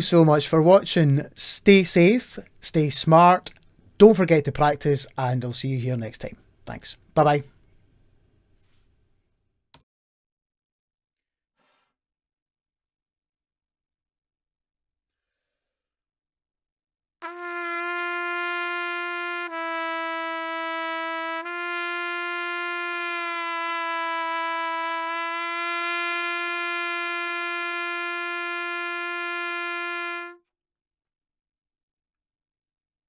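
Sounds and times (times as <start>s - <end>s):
trumpet bending a held note: 17.2s - 30.4s.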